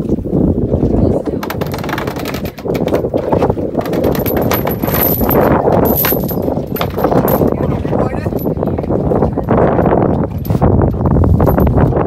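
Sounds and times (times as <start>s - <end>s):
anchor chain clinking against boat: 1.4s - 12.0s.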